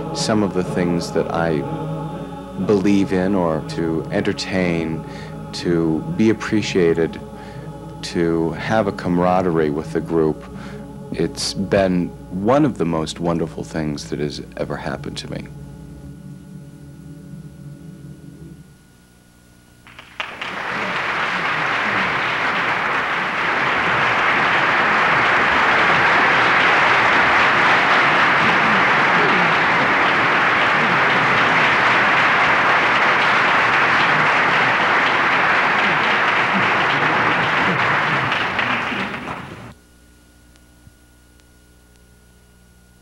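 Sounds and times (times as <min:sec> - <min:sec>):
audience applauding: 0:19.9 - 0:39.8.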